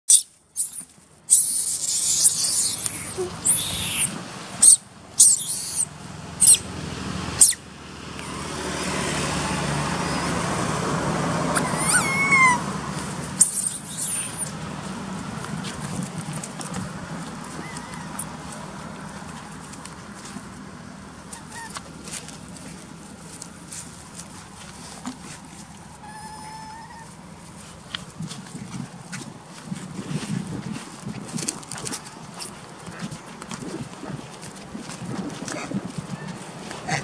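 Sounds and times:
baby monkey screaming: 0.1 - 6.6, 7.4 - 7.6, 11.5 - 12.7, 13.4 - 14.5, 17.6 - 18.3, 21.4 - 21.8, 26.0 - 27.1.

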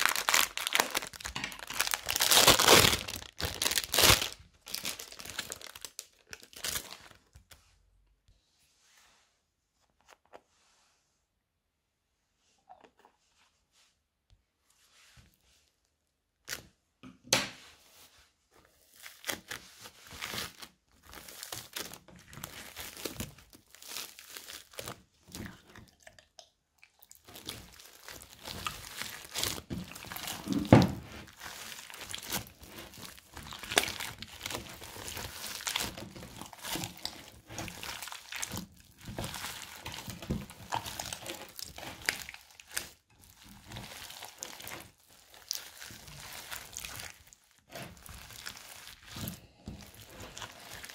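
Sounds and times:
foam beads crunching and crackling: 0.0 - 7.2, 18.9 - 25.6, 27.1 - 50.9.

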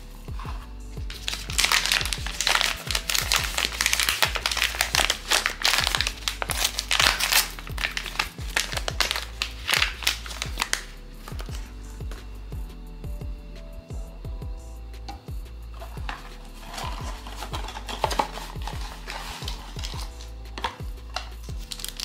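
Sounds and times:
background music with bass line: 0.0 - 22.0
plastic packaging crinkling: 1.1 - 11.6, 15.8 - 22.0.

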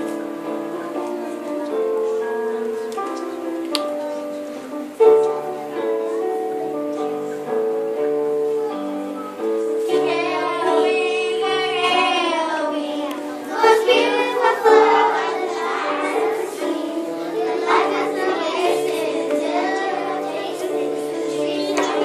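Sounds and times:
instrumental held notes: 0.0 - 22.0
children singing: 9.8 - 22.0.

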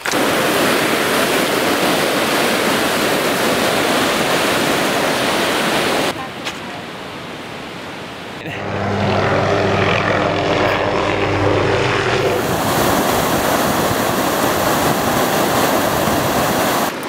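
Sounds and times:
droning hum: 8.4 - 16.2.

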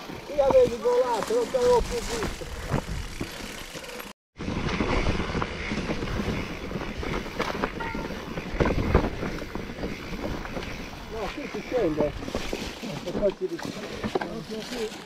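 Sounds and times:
wind buffeting microphone: 4.4 - 12.6.

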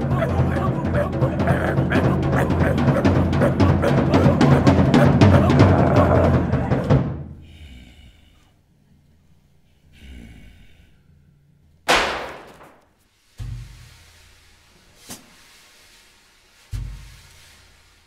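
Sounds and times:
drum kit drumming: 0.0 - 7.3.

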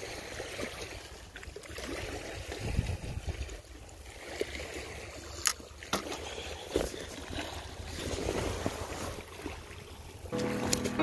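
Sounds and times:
small waves lapping at shore: 0.0 - 11.0
wind rumble on microphone: 2.4 - 3.6.

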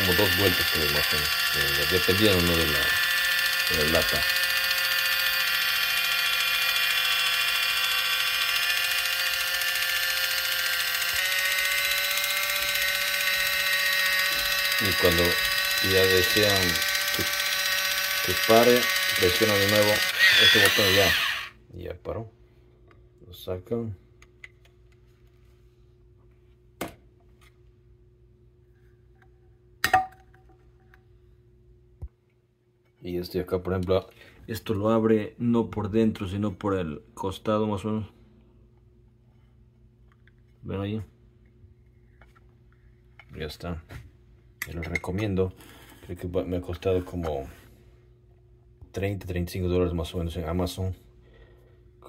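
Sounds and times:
electric can opener whirring: 0.0 - 21.6
faint steady hum: 0.0 - 52.0.

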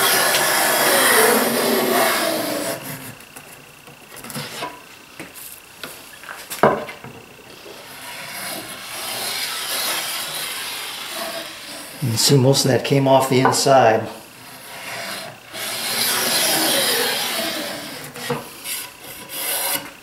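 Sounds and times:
plane scraping wood: 0.0 - 3.2, 4.2 - 4.8, 7.6 - 12.0, 13.4 - 20.0.

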